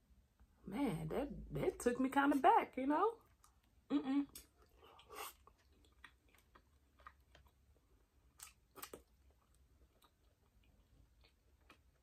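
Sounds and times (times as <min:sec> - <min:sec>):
quiet chewing: 0:03.2 - 0:12.0.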